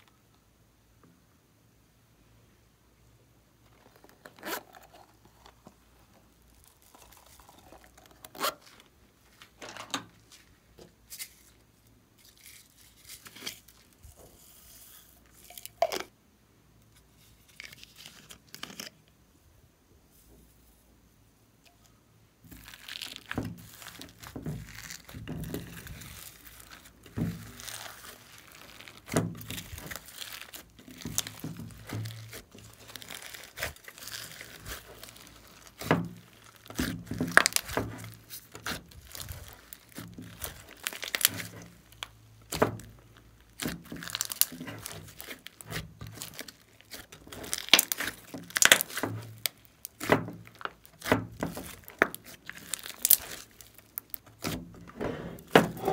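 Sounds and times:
slime squishing and popping: 6.4 - 8.7, 22.5 - 55.9.

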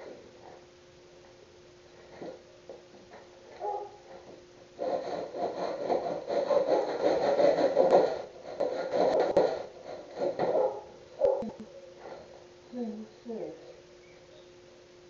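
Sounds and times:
hand plane scraping wood: 4.8 - 10.4.

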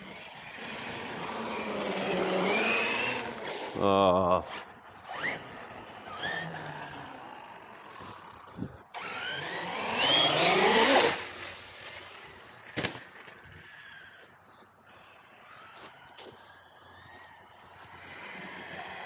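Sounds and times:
electric motor whining: 0.0 - 3.9, 4.5 - 12.5.

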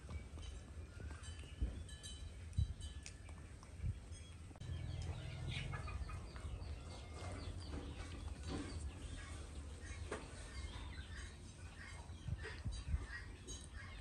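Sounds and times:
steady low rumble: 3.8 - 9.9.

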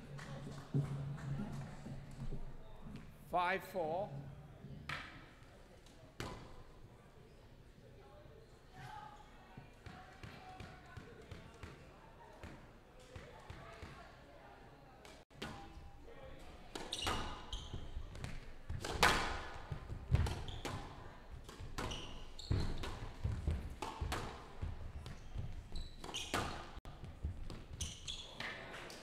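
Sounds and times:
squash ball impacts: 16.6 - 28.5
shoe squeaks on court floor: 16.8 - 18.1, 20.4 - 21.0, 21.8 - 23.2, 24.9 - 26.8, 27.7 - 28.6.

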